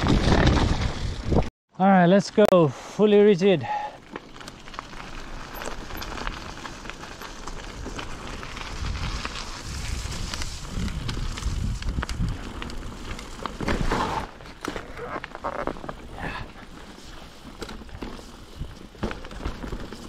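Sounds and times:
tyres crunching on gravel: 3.9s - 20.0s
bike clicks and rattles: 4.0s - 20.0s
wind rumble on microphone: 7.9s - 12.8s.

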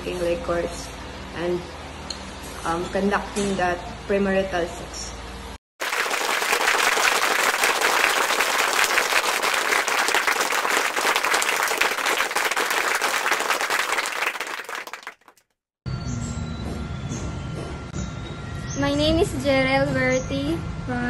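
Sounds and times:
crowd applauding: 5.8s - 15.4s.

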